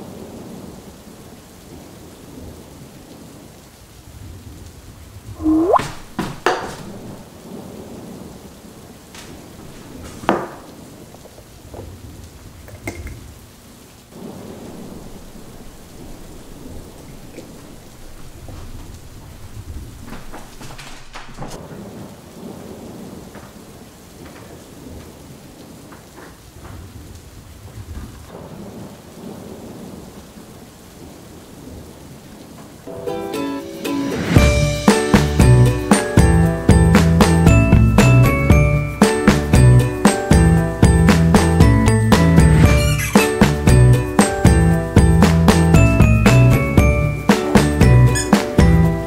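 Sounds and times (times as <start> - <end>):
steady rain: 0.0 - 49.0
thunder cracking and rumbling: 14.1 - 32.1.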